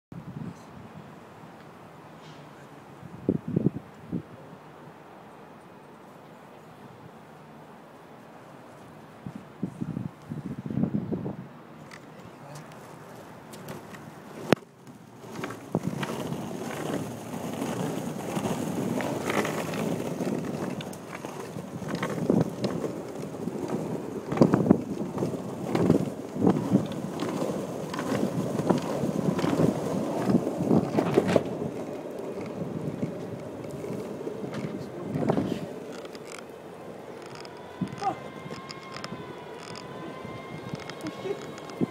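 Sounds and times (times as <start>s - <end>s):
wind on microphone: 0.1s - 1.2s, 3.0s - 4.5s, 9.2s - 11.6s, 15.3s - 41.9s
longboard wheels rolling on pavement: 0.2s - 41.9s.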